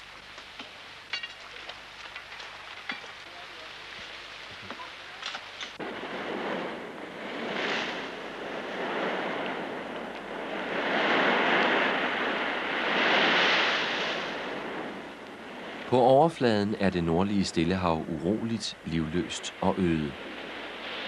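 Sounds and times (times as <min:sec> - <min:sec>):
wind: 0:00.0 - 0:21.0
waves breaking and churning: 0:04.8 - 0:21.0.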